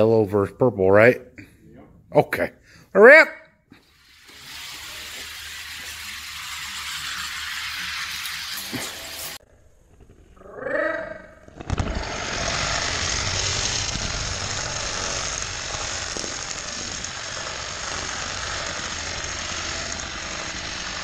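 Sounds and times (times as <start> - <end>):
toy car rattling on plastic track: 4.2 - 9.4, 12.3 - 21.0.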